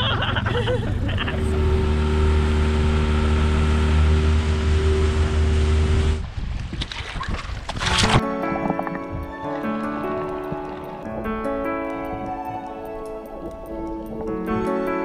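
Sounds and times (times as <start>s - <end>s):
outboard motor running: 0.7s - 6.2s.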